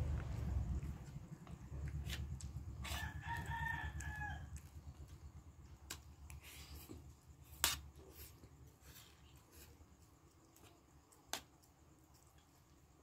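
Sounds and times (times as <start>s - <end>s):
rooster crowing: 2.8s - 4.7s.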